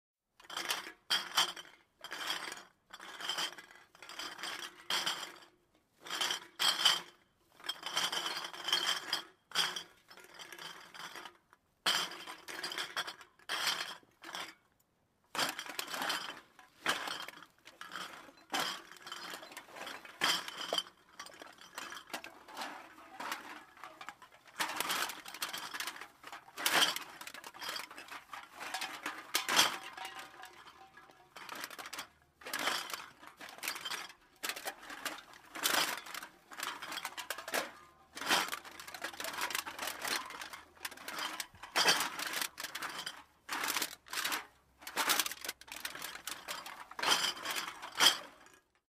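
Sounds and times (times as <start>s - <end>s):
glass bottles clinking: 15.7s - 44.3s, 44.9s - 48.4s.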